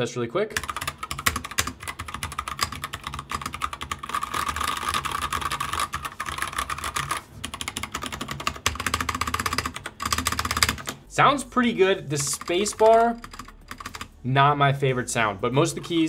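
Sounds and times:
mechanical keyboard typing: 0:00.5 - 0:11.1, 0:12.1 - 0:14.1.

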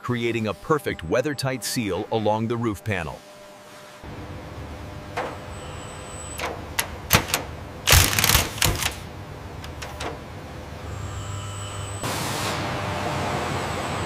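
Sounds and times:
robot tool clicking and clacking: 0:06.4 - 0:09.0.

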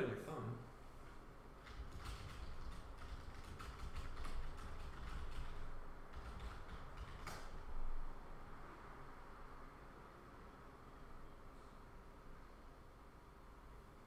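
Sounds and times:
computer mouse clicks: 0:01.9 - 0:07.6.

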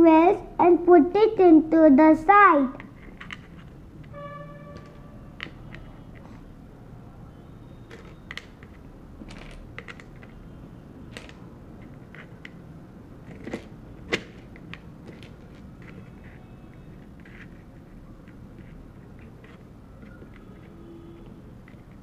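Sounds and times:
wooden tiles clicking and tapping: 0:02.8 - 0:03.8, 0:04.8 - 0:06.5, 0:07.9 - 0:10.4, 0:11.1 - 0:12.6, 0:13.3 - 0:22.0.

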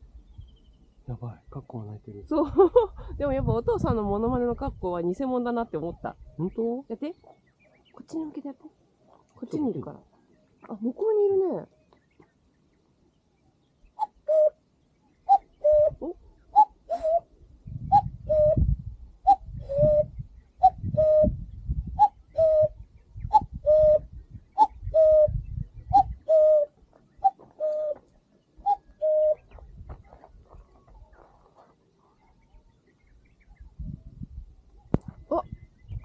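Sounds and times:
cuckoo calling: 0:13.9 - 0:14.6, 0:15.2 - 0:17.3, 0:19.2 - 0:21.4, 0:22.0 - 0:31.3.

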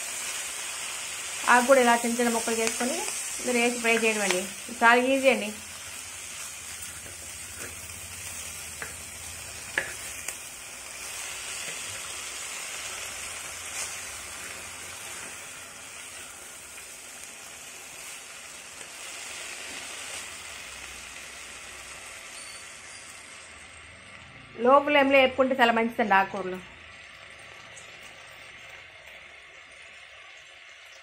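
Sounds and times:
greens sizzling in hot oil: 0:00.0 - 0:31.0
spatula knocking on pan: 0:09.7 - 0:10.1.

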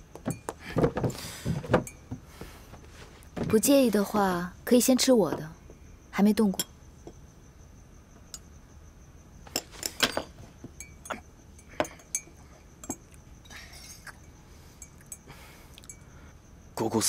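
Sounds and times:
dishes and cutlery clinking: 0:09.5 - 0:13.1.

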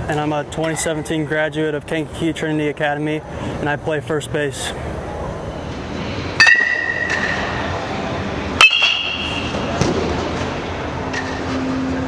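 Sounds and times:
metal bat ping: 0:06.4 - 0:07.6, 0:08.6 - 0:09.9.

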